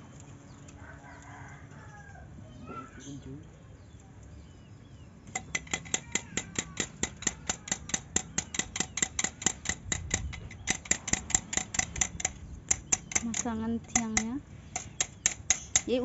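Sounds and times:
steel bar clinking on rebar: 5.3 - 16.0.

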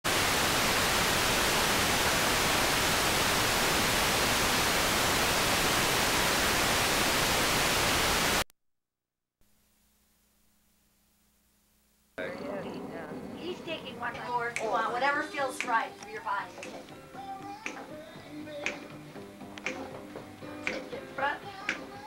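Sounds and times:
videotape static hiss: 0.1 - 8.4, 9.5 - 22.0
faint low hum: 9.5 - 16.5.

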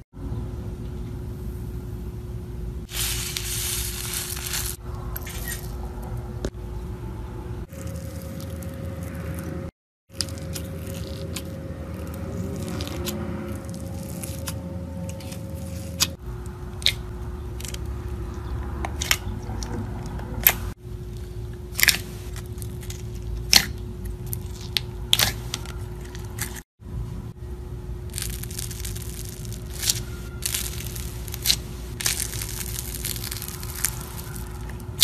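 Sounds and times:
steady low hum: 0.0 - 35.0
slime squishing: 7.7 - 16.2, 28.1 - 35.0.

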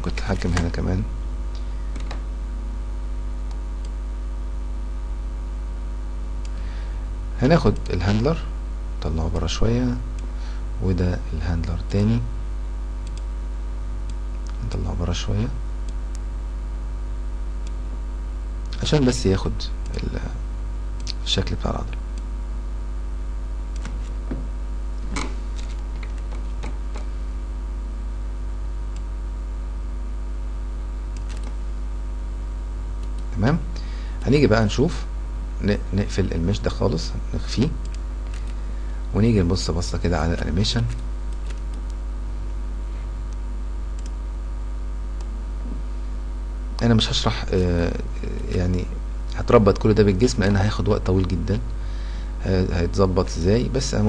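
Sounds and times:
electrical mains hum: 0.0 - 54.0
computer mouse clicks: 13.0 - 13.3, 23.7 - 24.1, 31.1 - 31.6, 33.0 - 33.3, 37.8 - 38.6, 40.4 - 42.0, 44.0 - 44.2
faint clicks: 13.0 - 13.3, 33.0 - 33.3, 44.0 - 44.2.

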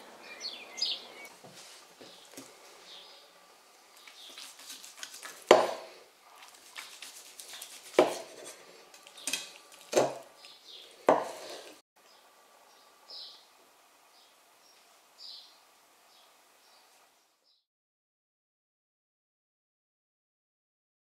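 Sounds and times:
knife scraping and cutting meat: 4.0 - 11.8
knife knocking on cutting board: 5.5 - 5.9, 8.0 - 8.3, 11.1 - 11.4.

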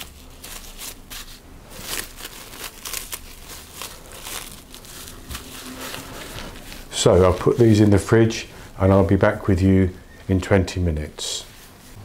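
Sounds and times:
cling film crinkling: 0.0 - 8.4.

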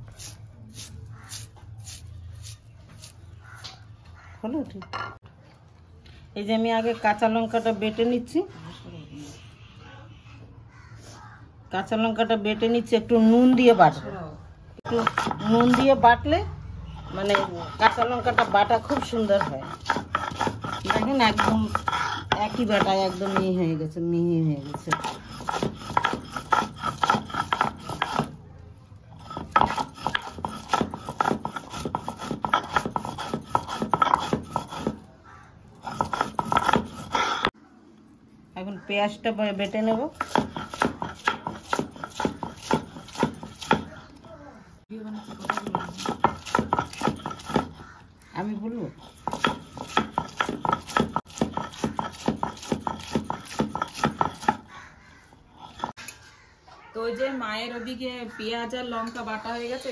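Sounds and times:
grinding stone scraping on stone slab: 14.8 - 16.0, 17.0 - 23.7, 24.5 - 28.4, 29.2 - 35.1, 35.8 - 37.5, 40.0 - 43.8, 45.1 - 47.9, 49.0 - 54.6, 55.5 - 56.0.

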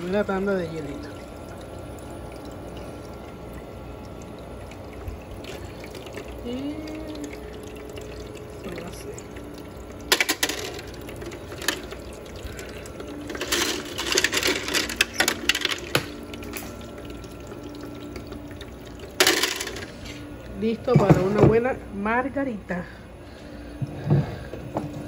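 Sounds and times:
ice maker humming: 0.0 - 25.0
ice cubes clinking: 10.1 - 16.8, 19.0 - 20.2.

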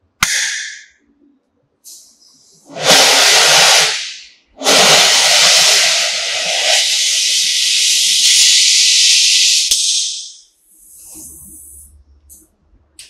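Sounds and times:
welding torch flame hissing: 2.7 - 11.9.

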